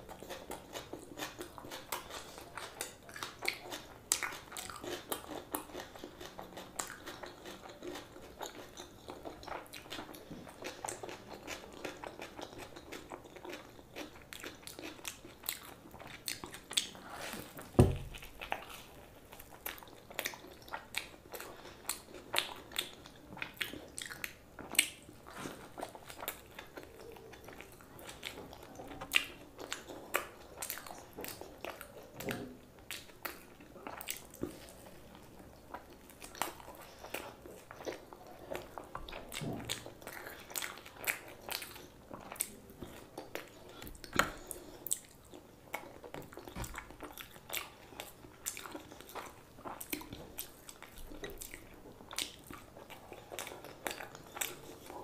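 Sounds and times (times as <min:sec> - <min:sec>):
close chewing and crunching: 0:00.0 - 0:55.0
low thump: 0:17.8 - 0:18.2.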